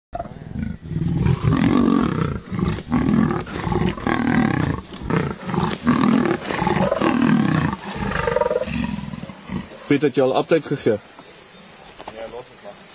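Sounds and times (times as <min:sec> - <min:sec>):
big cats growling and snarling: 0:00.2 - 0:10.2.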